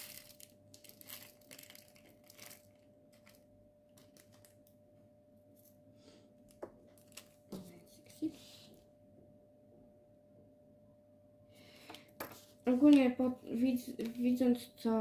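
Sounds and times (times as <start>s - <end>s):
plastic bags crinkling: 0.0s - 4.7s, 6.9s - 7.5s
faint steady hum: 0.0s - 15.0s.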